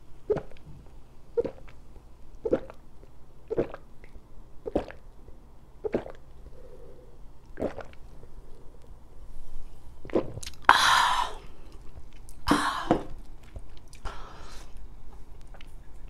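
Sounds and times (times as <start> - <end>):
person gulping beer: 1.4 - 1.8, 3.5 - 5.0, 5.8 - 6.7, 7.5 - 8.1, 10.0 - 14.1.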